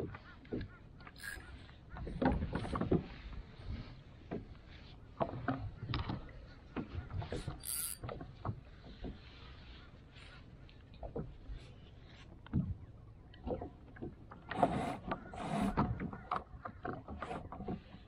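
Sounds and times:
fishing rods knocking and clicking: 0.0s - 3.1s, 5.2s - 9.2s, 13.3s - 17.9s.

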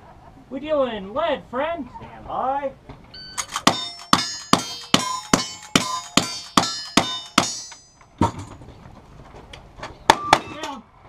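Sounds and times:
steel target clanging: 3.3s - 8.6s.

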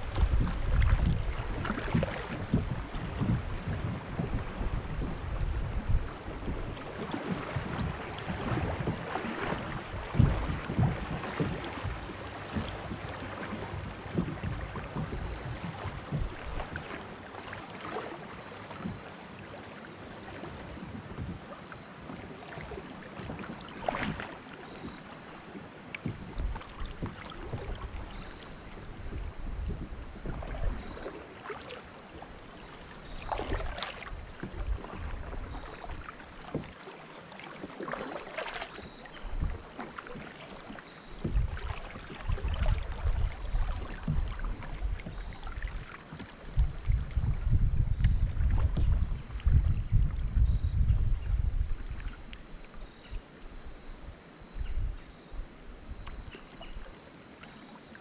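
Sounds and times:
paddle strokes splashing: 0.0s - 53.8s, 55.9s - 58.0s
water lapping against kayak hull: 0.0s - 58.0s.

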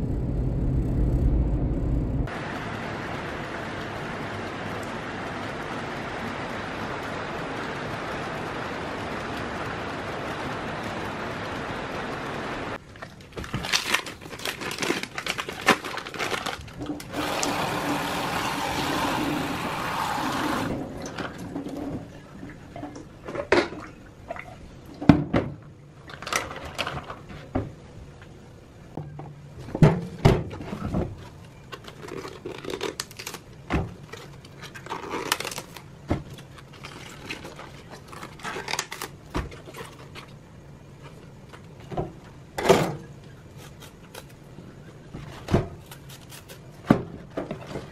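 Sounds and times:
plastic bag crinkling: 13.0s - 17.1s, 31.8s - 40.2s.

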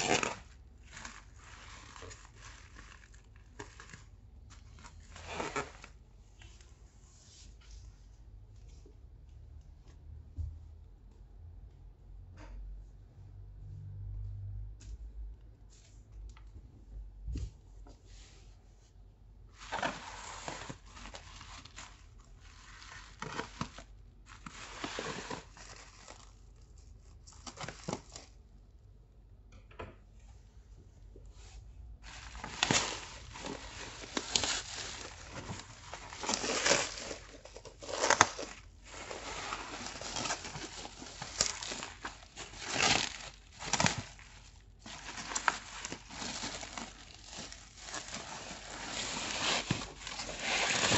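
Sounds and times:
plastic bubble wrap crinkling: 0.0s - 6.5s, 19.5s - 28.4s, 32.0s - 50.9s.

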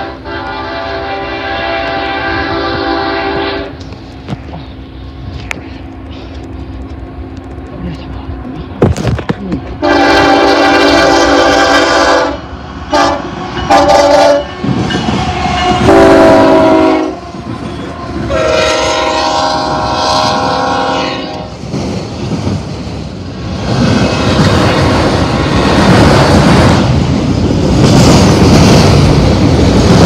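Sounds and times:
locomotive air horn blasts: 0.0s - 3.8s, 9.8s - 21.5s
train wheels rumbling and clattering: 0.0s - 30.0s.

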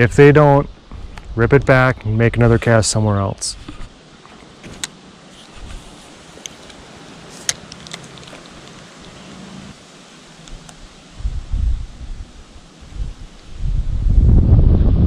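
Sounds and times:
fishing tackle clicks: 7.4s - 9.2s.

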